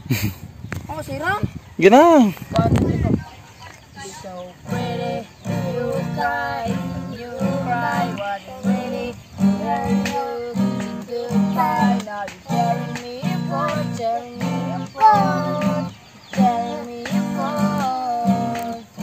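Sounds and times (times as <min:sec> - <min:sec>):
girl singing: 0:04.1 - 0:19.0
acoustic guitar strumming: 0:04.6 - 0:19.0.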